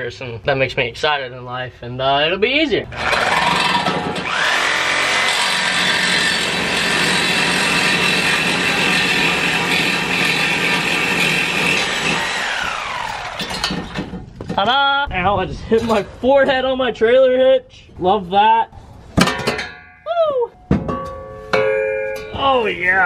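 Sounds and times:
power saw cutting steel pipe: 0:02.9 - 0:14.2.

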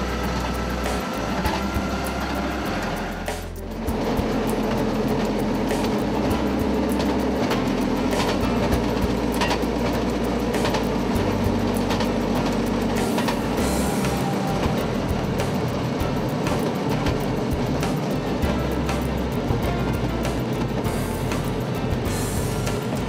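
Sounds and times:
rail motorcar engine and wheels: 0:00.0 - 0:23.0
wheels clicking over rail joints: 0:00.0 - 0:23.0.

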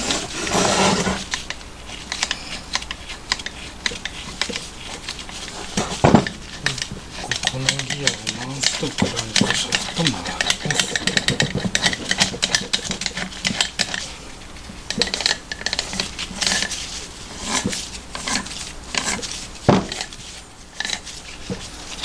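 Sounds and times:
fast metallic clicking: 0:06.6 - 0:14.0.

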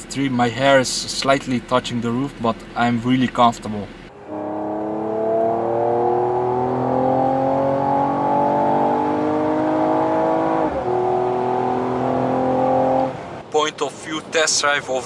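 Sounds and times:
car engine accelerating hard: 0:04.1 - 0:13.4.

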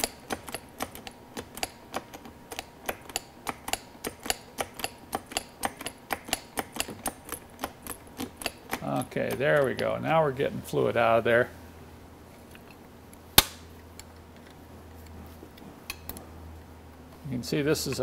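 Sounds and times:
hand pump clicking: 0:00.0 - 0:10.0.

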